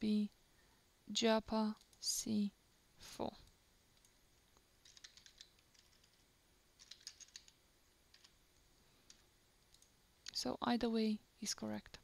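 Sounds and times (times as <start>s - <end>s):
faint typing on keyboard: 1.7s - 2.2s, 3.4s - 10.5s.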